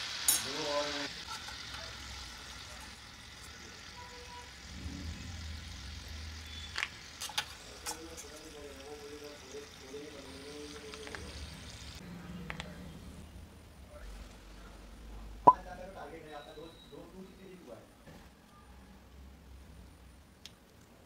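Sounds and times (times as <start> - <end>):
dough balls sizzling in oil: 0.0 - 12.0.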